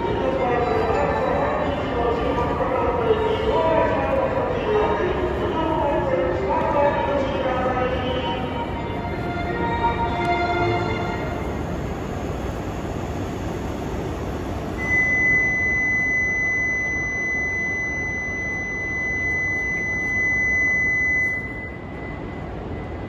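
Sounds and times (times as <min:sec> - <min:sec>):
train humming at platform: 0:00.0 - 0:23.0
departure buzzer high tone: 0:14.8 - 0:22.2.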